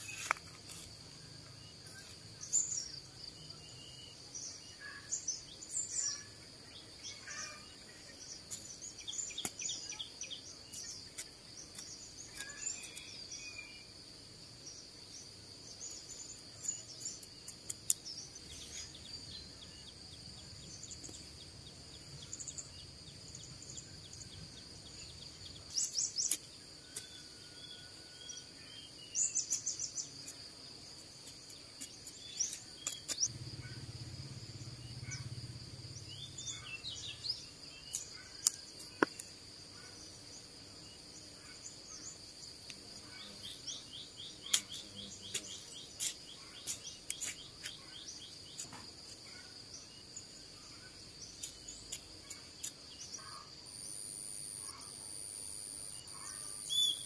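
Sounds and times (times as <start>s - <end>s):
trowel scraping dry soil: 0.0s - 1.0s
insect drone: 0.0s - 57.0s
bird chirps: 1.3s - 13.9s, 14.7s - 30.4s, 31.2s - 40.1s, 43.0s - 54.9s, 56.0s - 57.0s.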